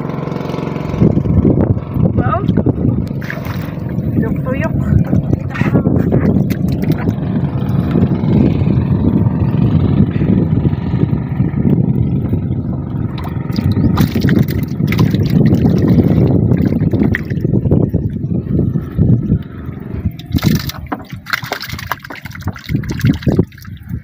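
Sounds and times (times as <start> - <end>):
water lapping against boat hull: 2.2 - 8.1, 12.4 - 18.3, 19.4 - 24.0.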